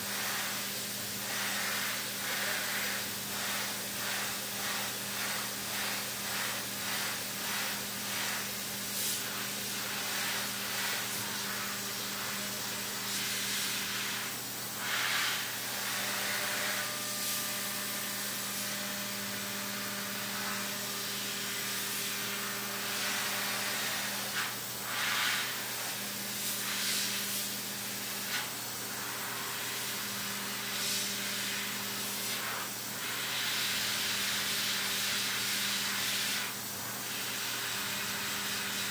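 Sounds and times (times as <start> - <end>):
coolant spray hissing: 23.0 - 27.6.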